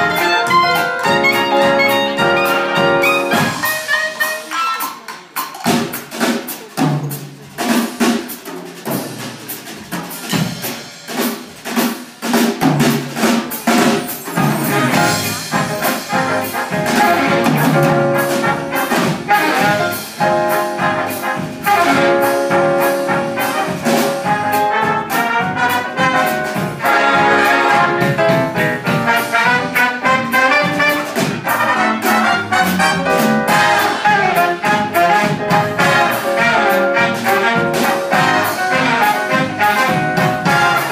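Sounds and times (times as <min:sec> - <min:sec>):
horn section playing jazz: 0:00.0 - 0:05.2, 0:13.7 - 0:40.9
drum kit steady beat: 0:00.0 - 0:40.9.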